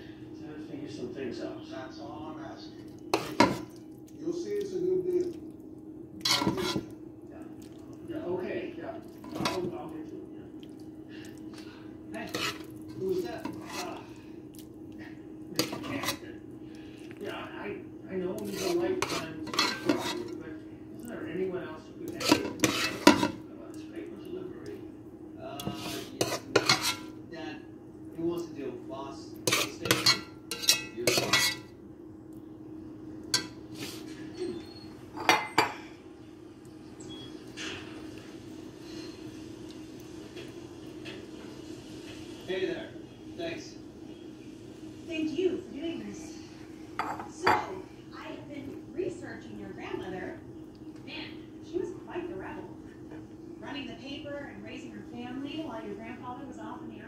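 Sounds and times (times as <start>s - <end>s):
utensil scraping glass dish: 6.2s - 6.9s, 12.3s - 12.7s, 15.6s - 16.2s, 18.4s - 20.4s, 22.1s - 23.4s, 25.6s - 27.1s, 29.5s - 31.6s
utensil clinking on glass dish: 29.5s - 31.7s.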